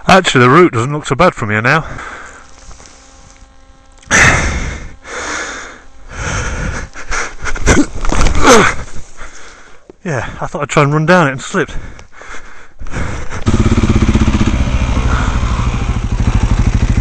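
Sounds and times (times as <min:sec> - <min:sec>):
person breathing hard: 0:01.8 - 0:02.6, 0:04.1 - 0:10.4, 0:11.7 - 0:13.8, 0:14.9 - 0:16.0
boots scuffing on loose dirt: 0:02.4 - 0:04.0
person crying out: 0:06.8 - 0:09.0, 0:15.0 - 0:15.9.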